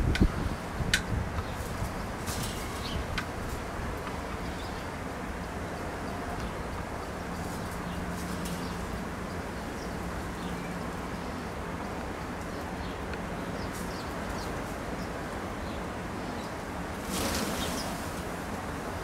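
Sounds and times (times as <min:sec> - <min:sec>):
sparrows chirping: 0:04.2 - 0:16.6.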